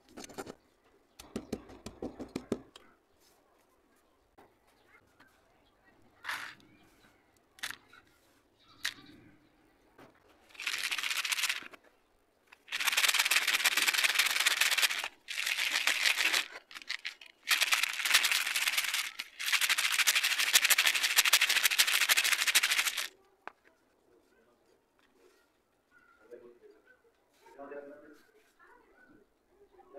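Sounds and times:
stone chunks rattling in plastic bowl: 10.5s - 11.8s, 12.6s - 23.1s.

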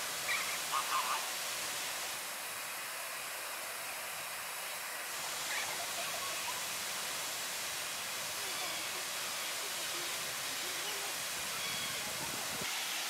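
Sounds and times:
steady background hiss: 0.0s - 13.0s
flamingos honking: 0.2s - 1.4s, 8.4s - 12.3s.

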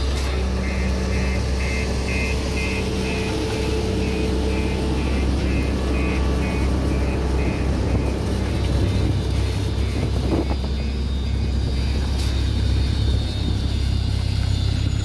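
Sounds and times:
diesel engine running: 0.0s - 15.0s
high repeating beep: 0.6s - 8.2s, 9.7s - 13.8s.

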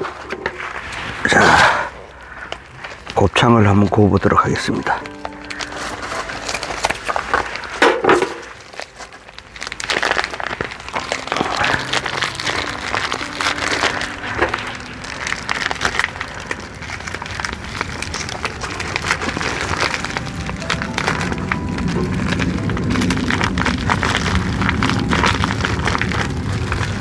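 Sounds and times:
meat sizzling on a grill: 8.7s - 27.0s.

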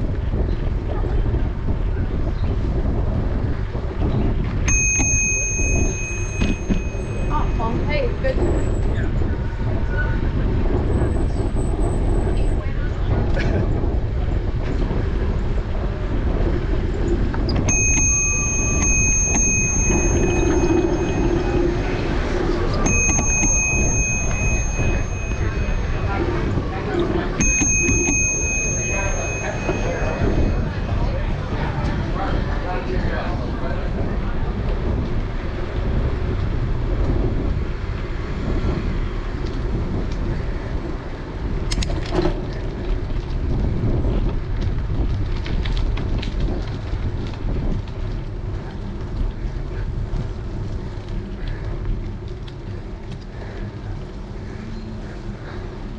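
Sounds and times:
bicycle rolling over pavement: 0.0s - 55.9s
wind on microphone: 0.0s - 55.9s
bicycle bell ringing: 4.7s - 8.8s, 17.7s - 31.9s.

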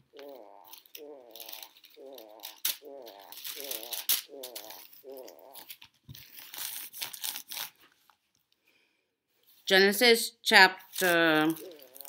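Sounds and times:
pages being leafed through: 1.4s - 8.2s.

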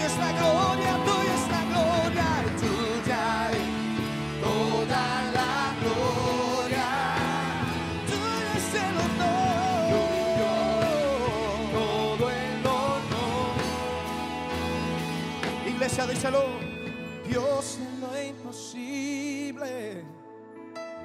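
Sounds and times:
several voices singing: 0.0s - 15.0s
drums: 0.0s - 18.4s
electric guitar: 0.0s - 21.0s
keyboard: 0.0s - 21.0s.

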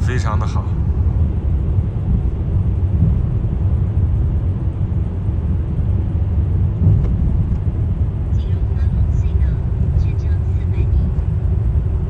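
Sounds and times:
road and engine rumble: 0.0s - 12.0s.

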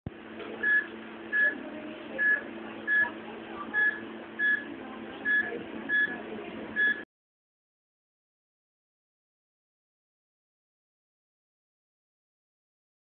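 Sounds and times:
steady low hum: 0.1s - 7.1s
patient monitor beeping: 0.6s - 7.1s.

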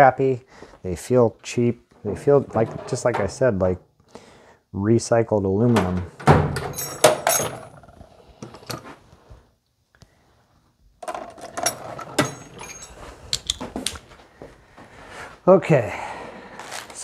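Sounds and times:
metal tools clinking: 6.6s - 7.9s, 11.0s - 13.8s.

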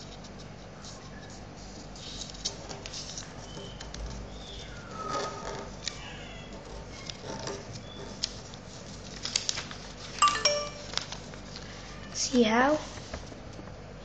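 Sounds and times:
paper folding and crinkling: 0.0s - 13.7s
ringing tone: 10.2s - 10.9s.

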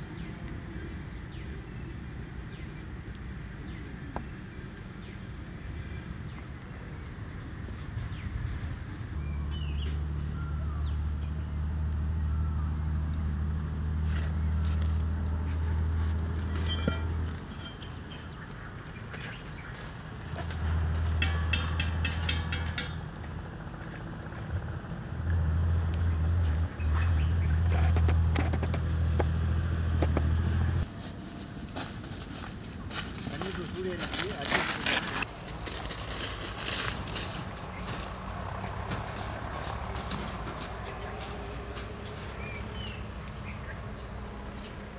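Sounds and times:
bird chirping: 0.0s - 2.9s, 3.6s - 6.8s, 8.0s - 14.2s, 16.3s - 23.0s, 26.1s - 28.9s, 31.3s - 32.2s, 38.9s - 39.7s, 40.8s - 44.9s
footsteps through leaf litter: 30.9s - 43.6s.

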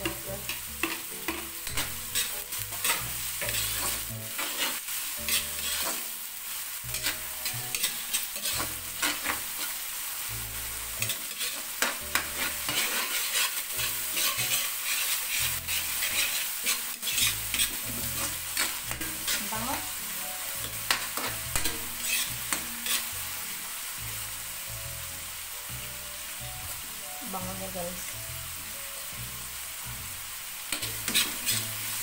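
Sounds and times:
metal spatula scraping wok: 0.0s - 6.2s, 6.9s - 9.8s, 10.7s - 23.4s, 30.7s - 32.0s
vegetables sizzling in oil: 0.0s - 32.0s.

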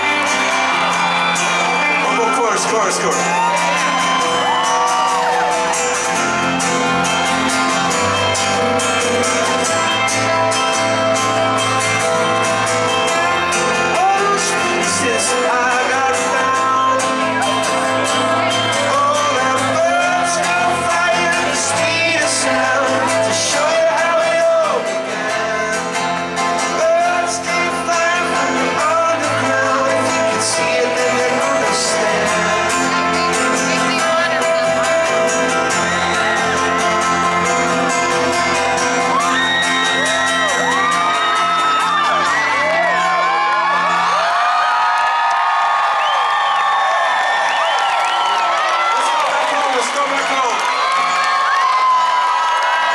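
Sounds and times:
person singing: 0.0s - 5.3s, 12.8s - 41.0s
bass guitar: 0.0s - 44.3s
piano: 0.0s - 48.9s
acoustic guitar: 0.0s - 52.9s.

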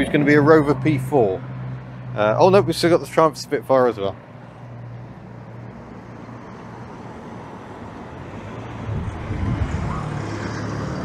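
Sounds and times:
cars driving past: 0.0s - 11.0s
car engine passing close: 4.7s - 11.0s.

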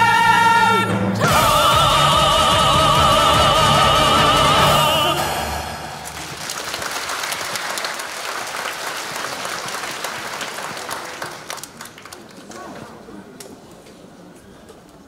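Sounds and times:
audience applauding: 5.8s - 12.7s.

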